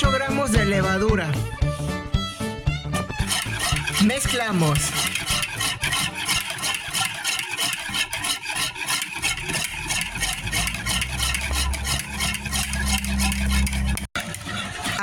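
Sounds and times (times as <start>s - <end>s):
whisk clicking against bowl: 3.2s - 15.0s.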